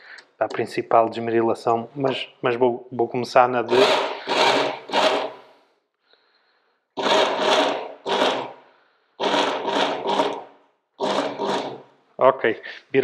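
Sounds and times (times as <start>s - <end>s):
belt sharpener running in bursts: 3.7s - 5.4s, 7.0s - 8.5s, 9.2s - 10.4s, 11.0s - 11.8s.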